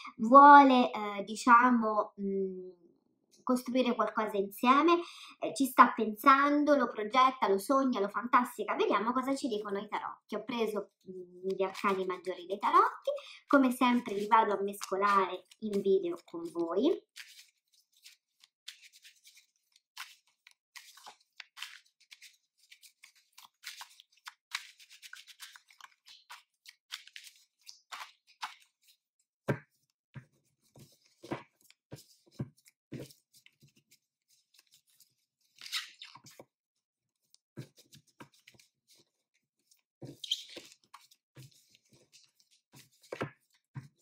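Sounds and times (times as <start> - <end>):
cards shuffled by hand: 11.5 - 12.3, 13.9 - 36.5, 37.2 - 44.0.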